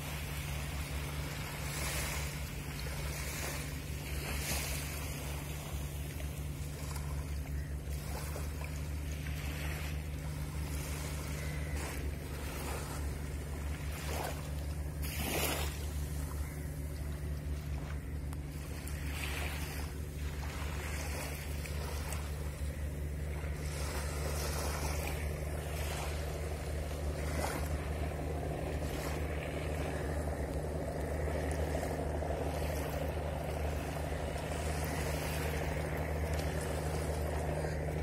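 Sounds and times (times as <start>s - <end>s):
ship engines droning: 0.0s - 38.0s
small waves washing onto beach: 0.0s - 38.0s.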